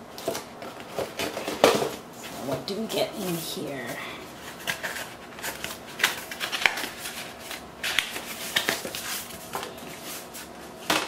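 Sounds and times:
cardboard rustling and scraping: 3.2 - 10.8.

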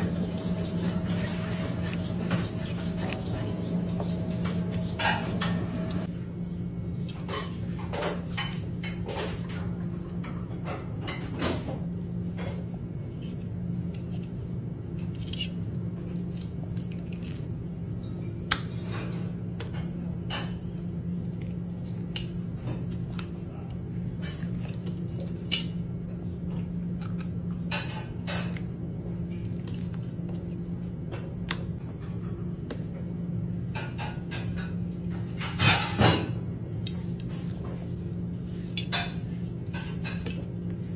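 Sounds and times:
low machine hum: 0.0 - 40.9.

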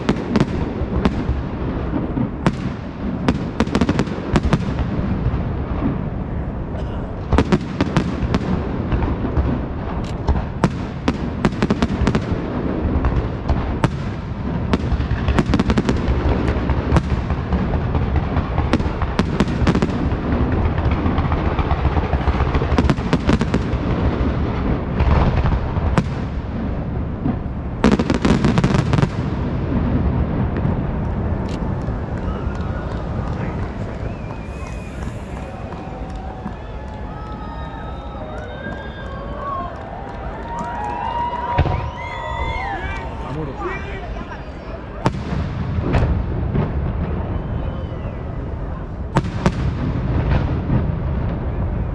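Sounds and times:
sharp firework cracks: 0.0 - 6.2, 7.1 - 43.2, 48.6 - 51.9
firework booms rumbling: 0.0 - 51.9.

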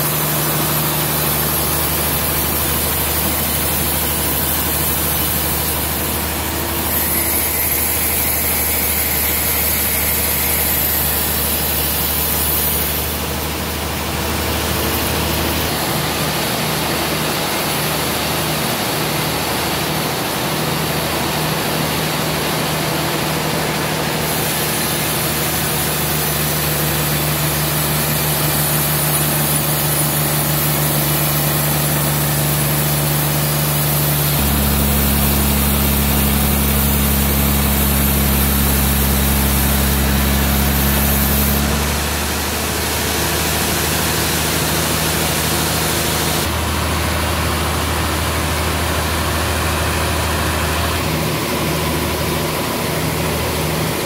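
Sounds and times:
band saw cutting log: 0.0 - 17.9, 24.0 - 46.6.

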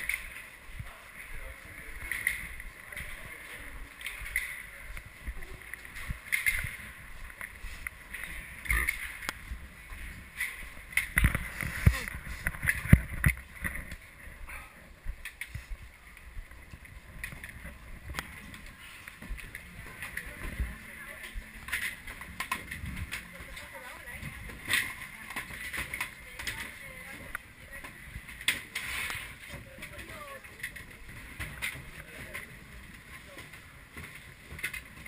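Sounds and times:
skis and poles knocking: 1.4 - 14.2, 15.1 - 35.0
people talking: 19.9 - 21.5, 23.2 - 28.0, 29.5 - 31.0.

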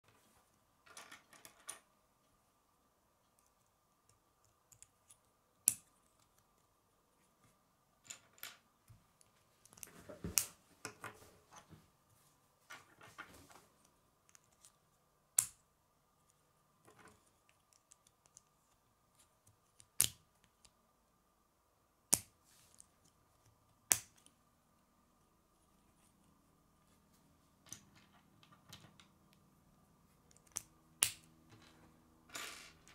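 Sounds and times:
plastic pieces snapping together: 23.9 - 24.3, 30.3 - 31.3.

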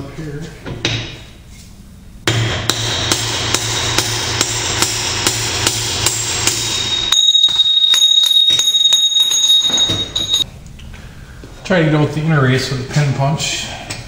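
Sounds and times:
hammer striking metal punch: 2.3 - 10.4
metal ringing: 6.0 - 10.5.

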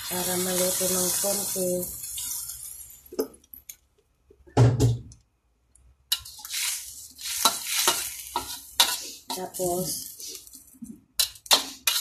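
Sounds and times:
food sizzling: 0.0 - 3.8, 6.1 - 12.0
metal spatula scraping a wok: 6.1 - 10.6, 11.2 - 12.0.

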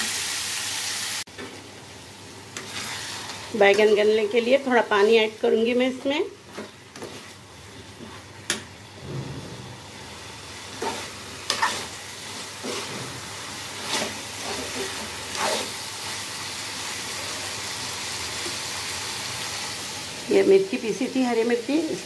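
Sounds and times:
vegetables sizzling in a pan: 0.0 - 22.0
metal spatula scraping pan: 10.8 - 15.8.

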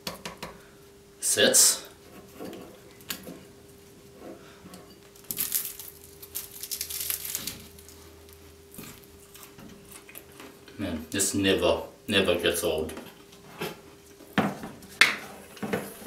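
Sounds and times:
faint steady hum: 0.0 - 16.0
pastry crust crunching: 5.0 - 10.4.

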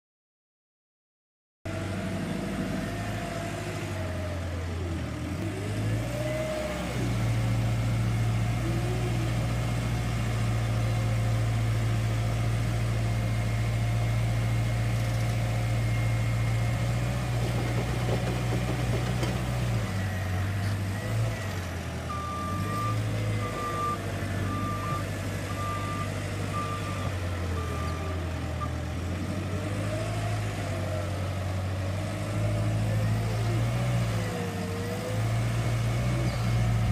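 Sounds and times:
diesel engine revving: 1.7 - 36.9
reversing alarm beeping: 22.1 - 28.8.

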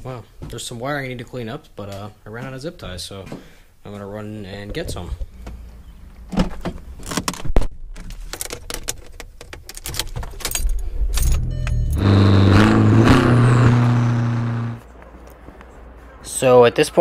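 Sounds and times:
car door and keys clunking: 8.4 - 12.0
car engine driving off: 10.5 - 14.9.

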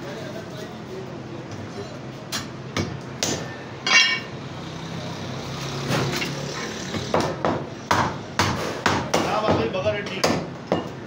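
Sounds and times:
metallic clink: 3.8 - 4.4.

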